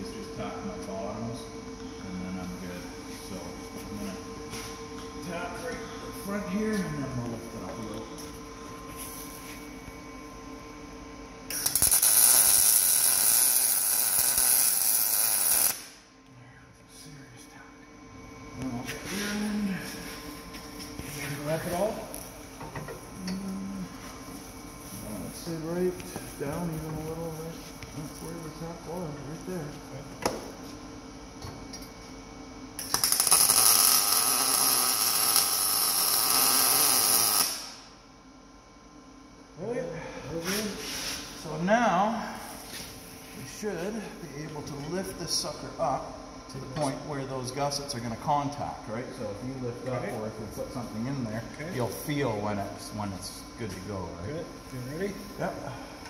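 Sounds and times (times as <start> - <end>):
faint steady hum: 0.0 - 56.0
arc welding crackling and hissing: 2.0 - 10.5, 11.4 - 16.1, 18.6 - 30.9, 32.7 - 38.0, 39.6 - 56.0
welding arc crackling and sizzling: 11.5 - 16.1, 18.6 - 29.7, 32.8 - 37.9.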